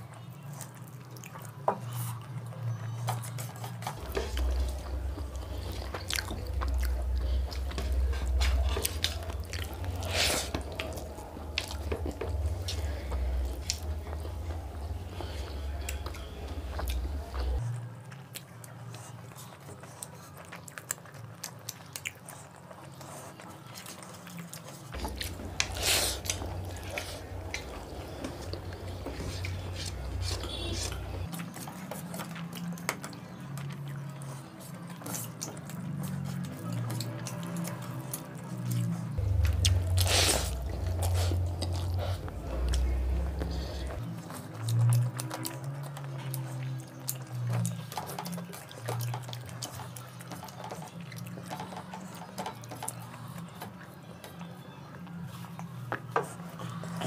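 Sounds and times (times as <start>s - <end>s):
people chewing food: 0.0s - 57.0s
low rumble: 39.2s - 44.0s.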